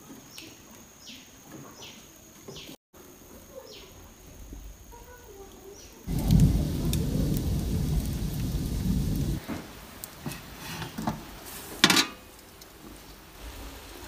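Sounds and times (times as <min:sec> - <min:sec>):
loud low rumbling: 0:06.1 - 0:09.4.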